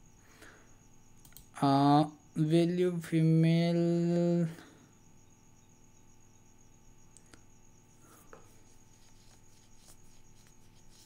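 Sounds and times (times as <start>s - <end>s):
faint room hum: 0.0s - 11.0s
soft clicks: 1.2s - 1.5s.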